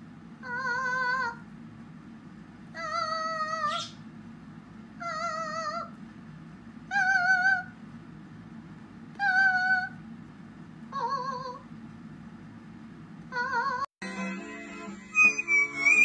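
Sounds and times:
cockatiel calling: 0:15.2 - 0:16.0.

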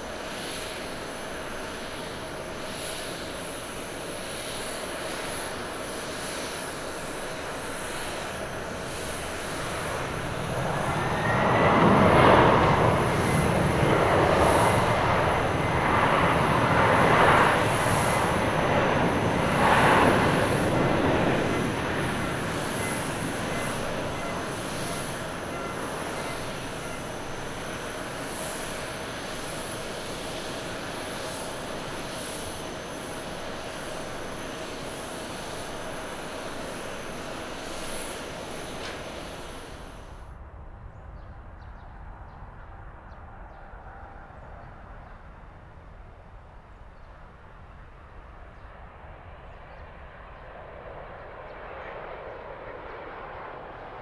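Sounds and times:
steady engine hum: 0:00.0 - 0:40.4
jet engines reverse thrust roar: 0:00.0 - 0:54.0
rising engine whine: 0:08.0 - 0:40.2.

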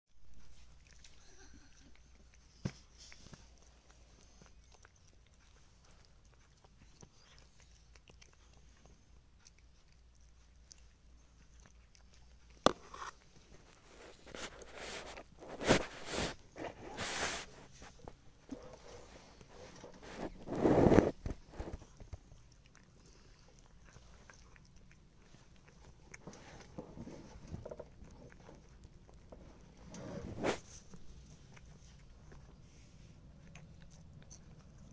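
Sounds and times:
kitten chewing clicks: 0:00.4 - 0:15.4, 0:19.8 - 0:30.0, 0:33.2 - 0:34.9.

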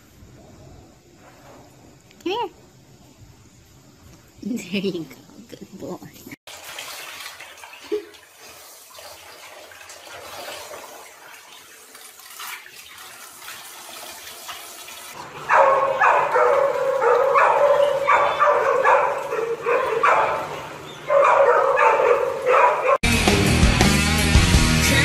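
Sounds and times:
dog barking and yipping: 0:15.3 - 0:23.0.

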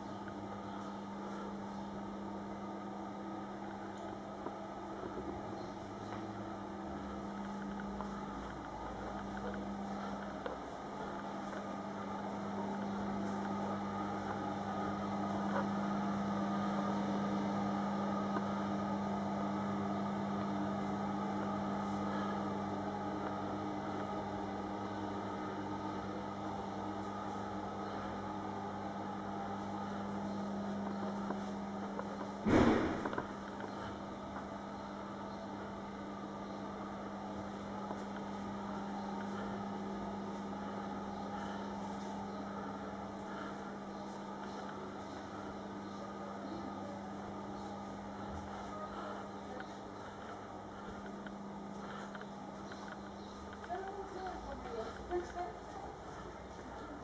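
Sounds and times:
low electrical hum with hiss: 0:00.0 - 0:57.0
loud bump: 0:32.5 - 0:33.3.

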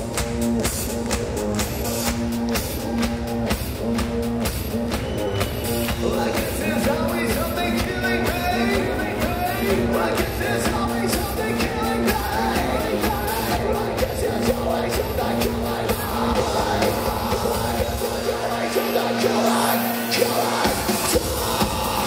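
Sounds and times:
electronic beat: 0:00.0 - 0:22.0
person singing: 0:05.9 - 0:22.0.

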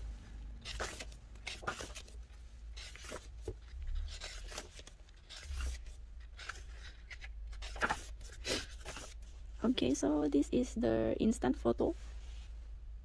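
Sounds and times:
book pages flipping: 0:00.6 - 0:09.3.

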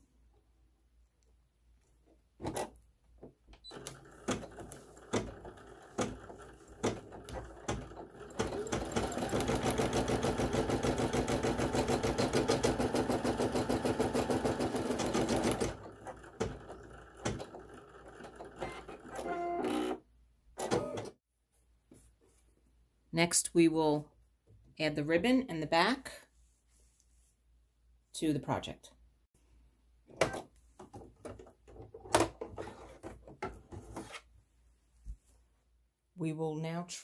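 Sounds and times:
embroidery machine stitching: 0:03.7 - 0:20.0, 0:20.6 - 0:21.2.

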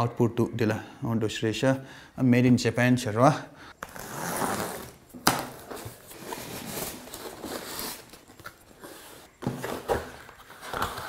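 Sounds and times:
cardboard rustling and scraping: 0:03.9 - 0:11.0.

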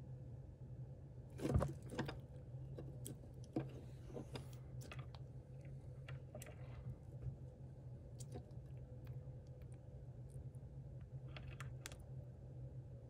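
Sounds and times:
low steady hum: 0:00.0 - 0:13.0
small wet clicks of chewing: 0:04.4 - 0:07.2, 0:08.1 - 0:10.5.

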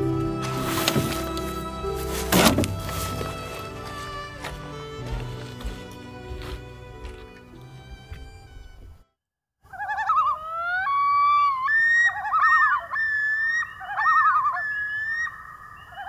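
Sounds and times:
closing music: 0:00.0 - 0:09.0
loon wailing calls: 0:09.7 - 0:16.0.

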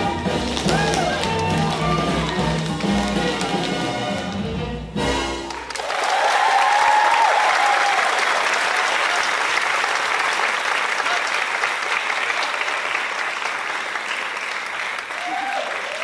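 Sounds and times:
audience applauding: 0:00.4 - 0:04.4, 0:05.4 - 0:16.0
person whooping: 0:00.7 - 0:02.3, 0:15.2 - 0:16.0.

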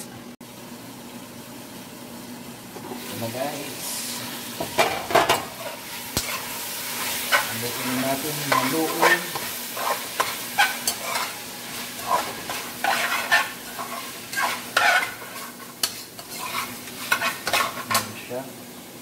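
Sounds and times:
meat sizzling: 0:01.0 - 0:19.0
utensil scraping a metal pot: 0:08.4 - 0:18.1.

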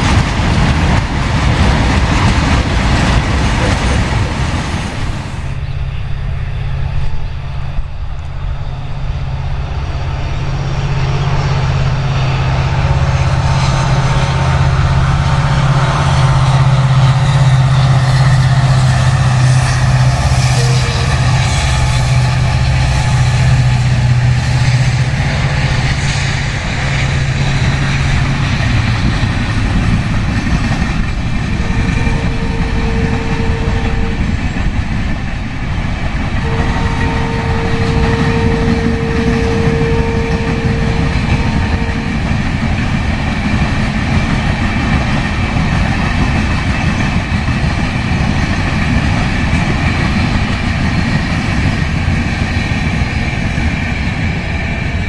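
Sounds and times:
locomotive engine drone: 0:00.0 - 0:55.0
wheels rumbling on rails: 0:00.0 - 0:55.0
steady higher tone: 0:04.9 - 0:27.8, 0:30.8 - 0:35.1, 0:36.3 - 0:43.4.

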